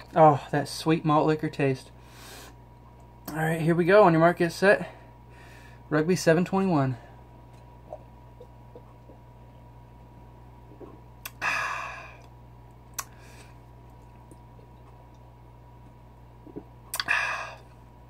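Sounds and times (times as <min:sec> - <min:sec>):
mouth clicks: 0:16.4 - 0:17.2
man exhaling sighs: 0:17.0 - 0:17.7.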